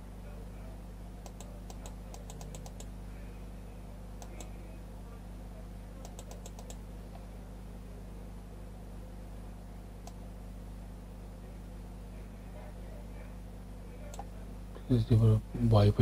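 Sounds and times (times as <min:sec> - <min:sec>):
low electrical hum: 0:00.0 - 0:16.0
computer mouse clicking: 0:01.2 - 0:02.9, 0:04.2 - 0:04.5, 0:06.0 - 0:06.8, 0:14.1 - 0:14.3.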